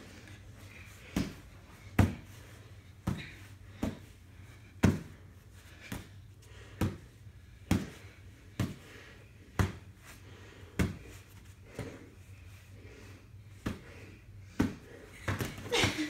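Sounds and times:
boxing gloves thudding: 1.0s - 2.3s, 3.0s - 4.1s, 4.8s - 5.2s, 6.8s - 8.8s.

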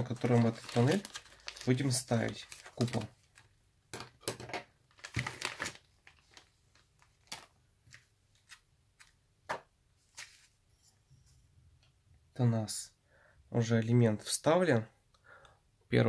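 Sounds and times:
plastic crinkling: 0.0s - 3.5s, 4.9s - 8.6s.

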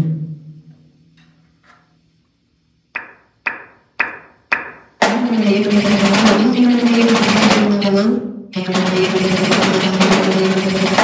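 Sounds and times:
snare drum strikes: 2.9s - 7.7s, 8.7s - 11.0s
snare drum roll: 4.1s - 7.9s, 8.6s - 11.0s.

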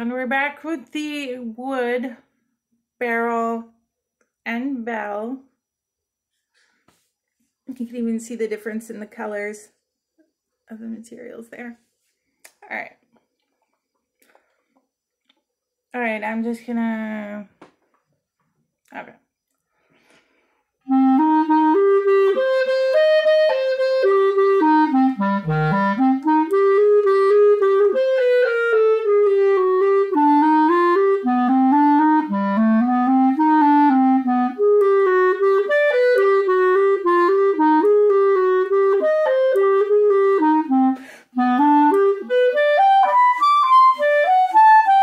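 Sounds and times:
solo clarinet: 20.9s - 45.0s.

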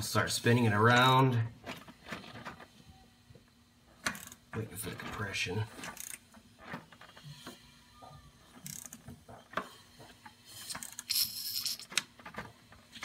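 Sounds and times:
ratchet wrench clicking: 4.1s - 4.4s, 8.6s - 9.0s, 10.8s - 11.9s.

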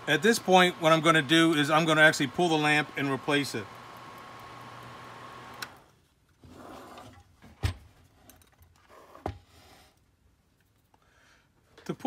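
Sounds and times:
projector fan motor humming: 0.0s - 5.9s.

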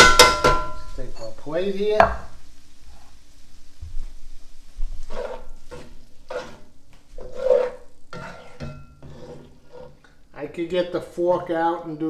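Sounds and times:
light sizzle: 0.0s - 12.0s
metal tongs scraping a skillet: 5.0s - 10.2s.

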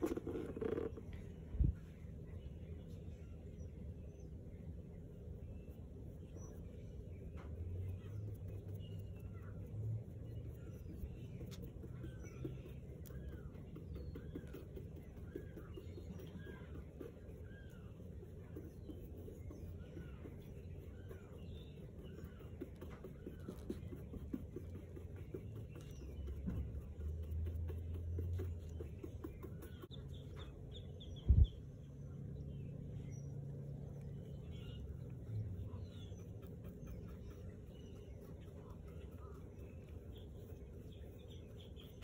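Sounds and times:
paintbrush tapping on leather: 0.0s - 1.2s, 10.6s - 30.5s
low hum: 0.0s - 42.0s
small birds chirping: 0.0s - 42.0s.

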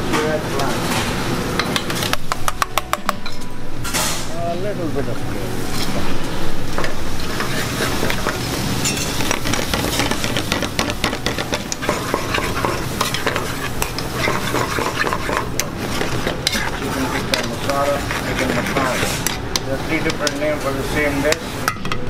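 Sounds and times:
sauce sizzling: 5.4s - 21.6s
utensil scraping steel pan: 7.2s - 21.7s
utensil clicking against pan: 9.2s - 20.4s.

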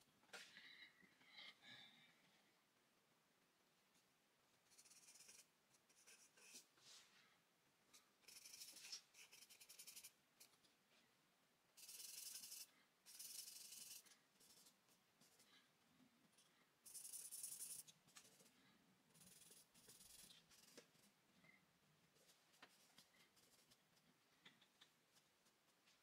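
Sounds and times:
charcoal scratching on paper: 4.7s - 6.7s, 8.2s - 10.2s, 11.8s - 14.8s, 16.9s - 18.5s, 19.1s - 20.8s, 22.8s - 23.9s.

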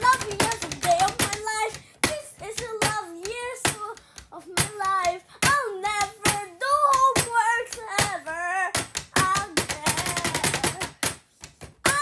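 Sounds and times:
child singing: 0.0s - 11.1s
hand taps and claps: 4.6s - 12.0s.

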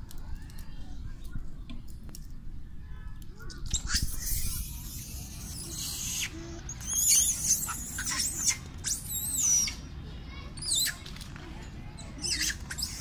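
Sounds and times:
monkeys squealing: 3.6s - 9.9s, 10.6s - 11.0s, 12.2s - 13.0s.

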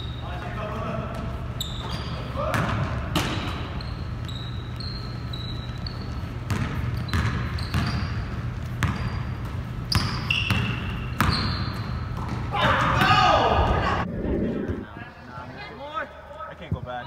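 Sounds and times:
sneakers squeaking: 0.0s - 13.0s.

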